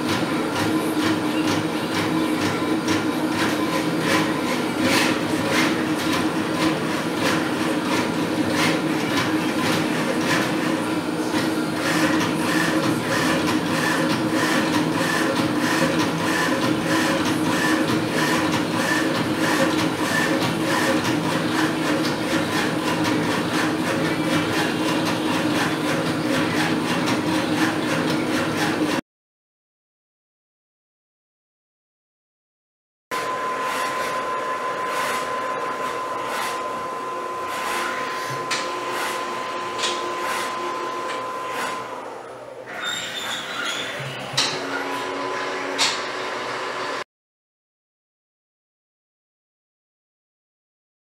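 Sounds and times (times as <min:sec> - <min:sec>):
printer motor whir and whine: 0:00.0 - 0:29.0, 0:33.1 - 0:47.0
printer swish: 0:34.8 - 0:36.7, 0:37.4 - 0:42.0.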